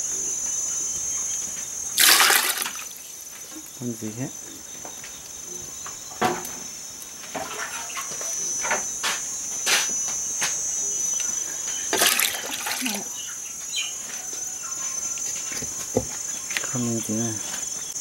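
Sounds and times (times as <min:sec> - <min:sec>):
insects chirring: 0:00.0 - 0:18.0
water sloshing: 0:02.0 - 0:03.1, 0:12.0 - 0:13.1.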